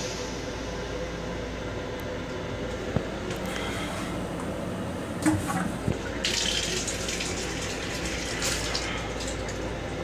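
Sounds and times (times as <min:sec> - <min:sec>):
faucet water splashing into basin: 0:06.2 - 0:09.6.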